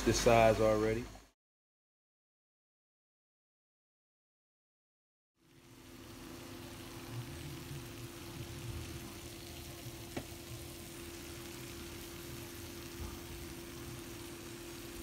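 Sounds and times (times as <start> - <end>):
food sizzling in oven: 0.0 - 1.3, 5.4 - 15.0
low steady hum: 5.4 - 15.0.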